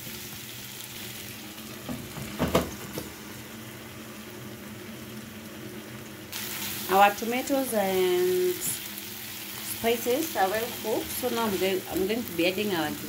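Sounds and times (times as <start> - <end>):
food sizzling in a frying pan: 0.0 - 13.0
spatula knocking on pan: 1.9 - 3.1.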